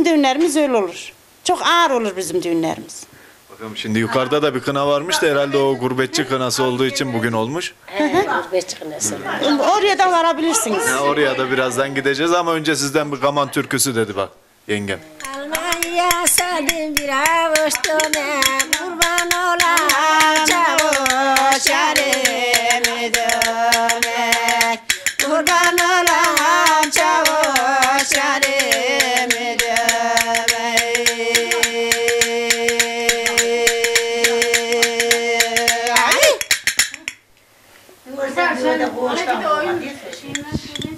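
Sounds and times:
woman singing folk song: 15.2s - 36.2s
clicking taps on a saucer: 15.2s - 37.2s, 40.1s - 40.9s.

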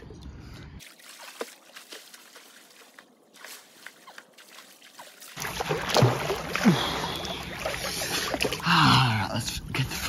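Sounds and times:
pool water splashing: 0.8s - 9.0s
water dripping: 0.8s - 9.0s.

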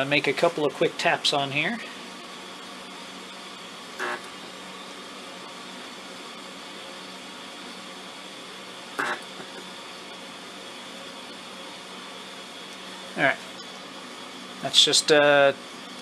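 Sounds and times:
steady low hum: 0.0s - 16.0s
spot welder snap: 9.0s - 9.7s.

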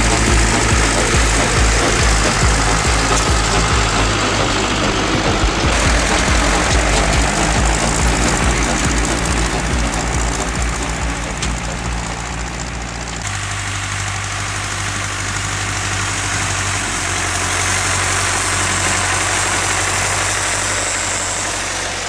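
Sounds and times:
tractor diesel engine running: 0.0s - 22.0s.

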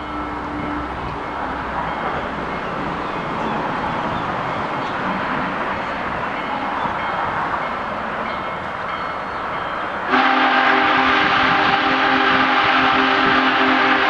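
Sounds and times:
steam locomotive chime whistle: 0.0s - 4.2s, 8.3s - 14.0s.

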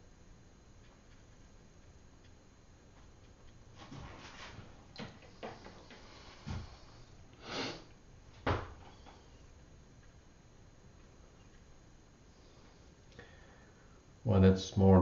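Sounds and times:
short breathy hiss: 6.0s - 7.9s.

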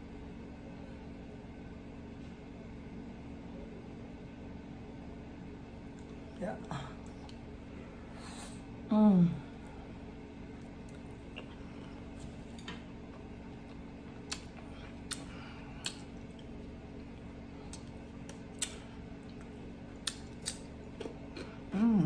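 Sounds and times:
faint steady hum: 0.0s - 22.0s
wet chewing clicks and smacks: 5.8s - 6.2s, 10.6s - 21.6s
person humming mm: 8.9s - 9.5s.

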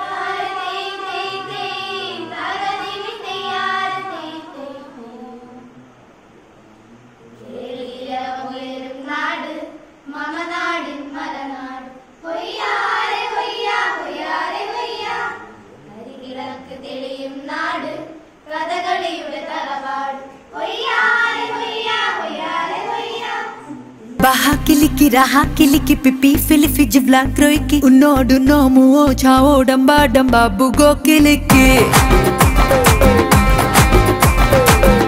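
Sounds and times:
girls singing unaccompanied: 0.0s - 5.8s, 7.4s - 29.6s
dance music with strong beat: 30.8s - 35.0s.

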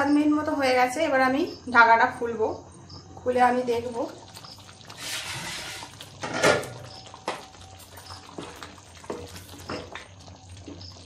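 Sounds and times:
wooden spatula stirring thick gravy: 6.8s - 11.0s.

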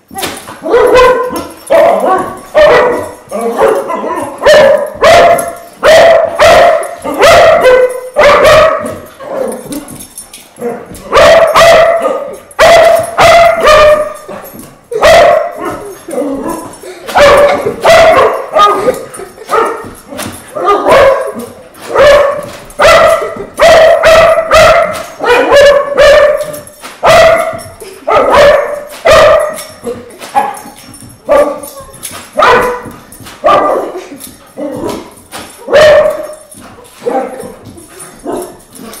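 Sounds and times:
small dog barking and yipping: 0.6s - 9.0s, 11.1s - 14.2s, 17.2s - 18.9s, 20.6s - 29.6s, 32.4s - 32.8s, 35.7s - 36.4s.

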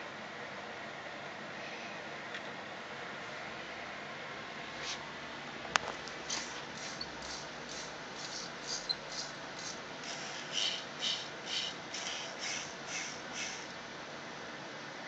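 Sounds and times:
small motors buzzing in rasping pulses: 6.3s - 13.7s.

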